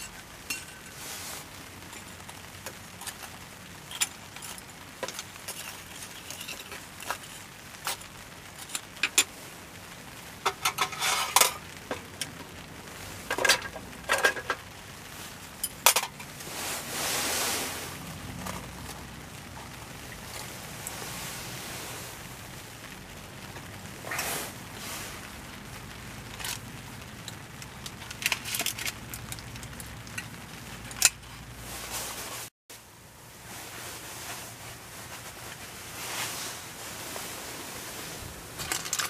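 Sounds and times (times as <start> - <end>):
metal tongs clinking on charcoal: 0.0 - 1.1, 1.8 - 9.3, 10.5 - 12.4, 13.3 - 14.6, 15.6 - 16.4, 38.6 - 39.0.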